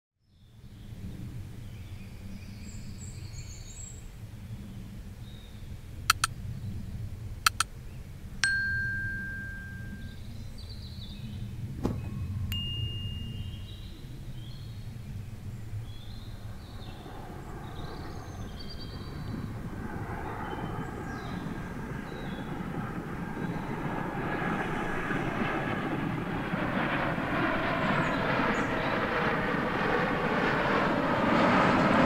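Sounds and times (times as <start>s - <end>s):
jet engine of landing aircraft: 0.4s - 8.0s, 10.6s - 12.5s, 13.8s - 32.0s
low steady rumble: 5.9s - 10.4s
sharp clicks: 6.1s - 6.3s, 7.5s - 7.7s
bell-like ding: 8.4s - 10.2s, 12.5s - 13.9s.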